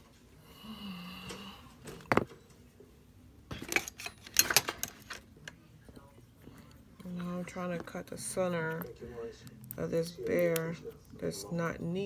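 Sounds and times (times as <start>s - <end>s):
hand tools clicking and rattling: 3.6s - 5.2s.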